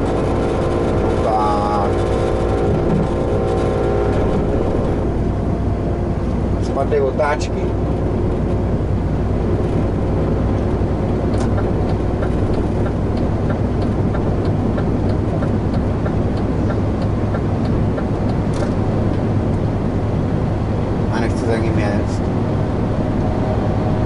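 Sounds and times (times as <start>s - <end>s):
diesel engine droning in cab: 0.0s - 24.0s
faint regular ticking: 11.3s - 18.7s.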